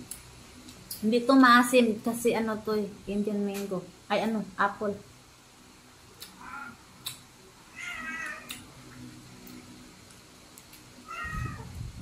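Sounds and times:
cat meowing: 6.4 - 6.8, 7.7 - 8.6, 11.0 - 11.7.

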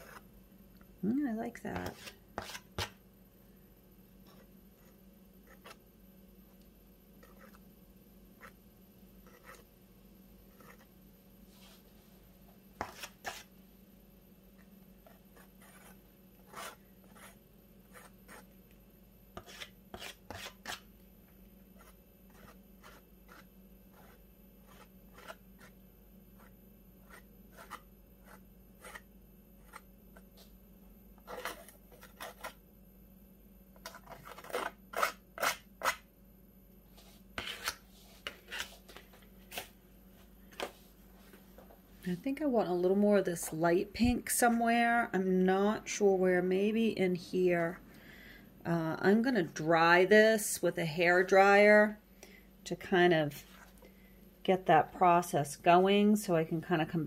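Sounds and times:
palette knife scraping paint: 0.0 - 0.3, 1.8 - 3.0, 4.2 - 5.8, 7.2 - 7.6, 8.4 - 8.6, 9.2 - 9.7, 10.4 - 10.9, 12.8 - 13.5, 14.6 - 18.5, 19.4 - 20.9, 21.7 - 25.8, 26.4 - 30.3, 31.2 - 32.6, 33.8 - 36.0, 37.4 - 38.9.

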